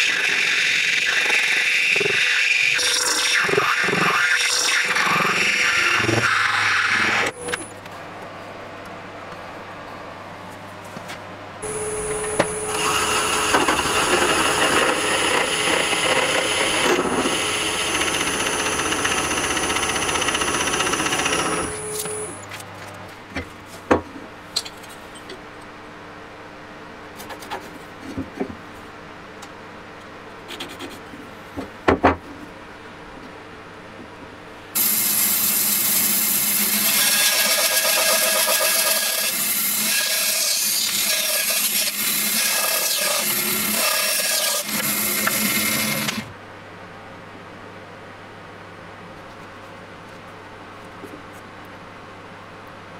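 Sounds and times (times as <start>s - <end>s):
bandsaw cutting wood: 0.0s - 7.4s, 12.6s - 22.4s, 34.8s - 46.3s
lathe boring with high whine: 0.0s - 7.7s, 11.6s - 22.4s, 34.8s - 46.3s.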